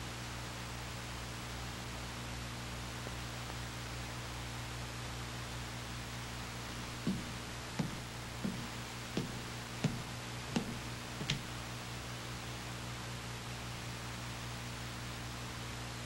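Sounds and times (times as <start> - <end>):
steady hiss: 5.4 - 13.0
footsteps of hard-soled shoes: 6.7 - 11.7.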